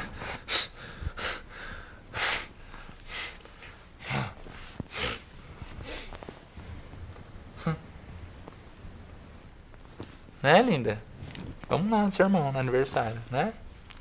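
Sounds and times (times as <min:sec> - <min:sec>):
man huffing and snorting: 0:07.5 - 0:08.0.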